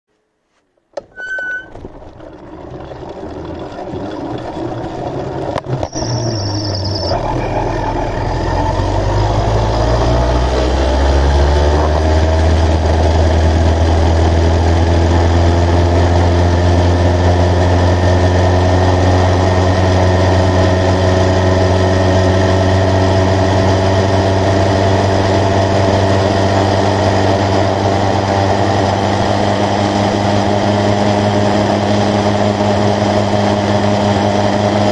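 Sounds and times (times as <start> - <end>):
short electronic beep: 1.1 - 1.7, 5.8 - 8.3
motorized bicycle engine accelerating: 1.1 - 34.9.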